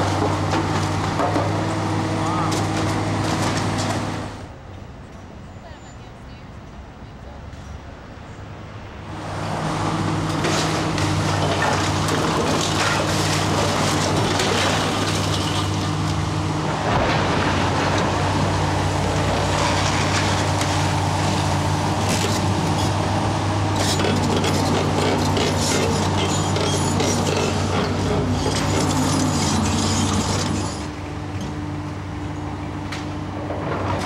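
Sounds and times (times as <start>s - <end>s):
excavator diesel engine running: 9.1s - 34.0s
falling brick and rubble crashing: 10.4s - 21.2s.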